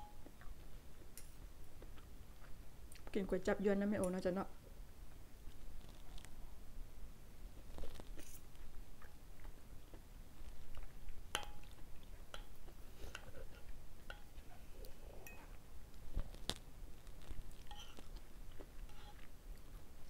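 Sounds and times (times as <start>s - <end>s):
person chewing: 0.2s - 3.1s, 7.7s - 14.2s, 14.8s - 19.9s
cutlery clinking on a plate: 11.4s - 11.7s, 17.6s - 18.0s.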